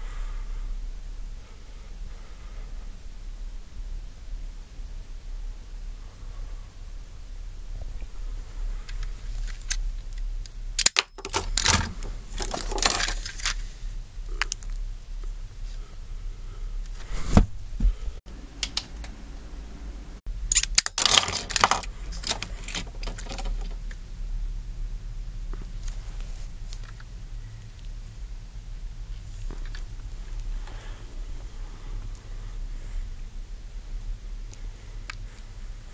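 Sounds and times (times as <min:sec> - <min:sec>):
low steady hum: 0:00.0 - 0:35.9
small hard objects clicking: 0:08.9 - 0:13.6, 0:20.5 - 0:24.0.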